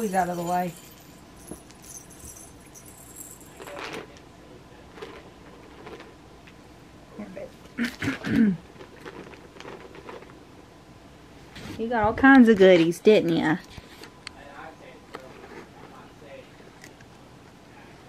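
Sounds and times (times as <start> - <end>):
cat toys rustling and clinking: 0.0 - 4.2, 4.9 - 6.1, 8.6 - 10.4.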